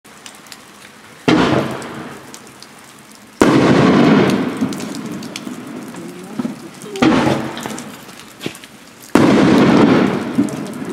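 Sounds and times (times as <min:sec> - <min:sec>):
fireworks crackle: 0:00.1 - 0:10.9
fireworks booms: 0:01.2 - 0:02.3, 0:03.4 - 0:10.9.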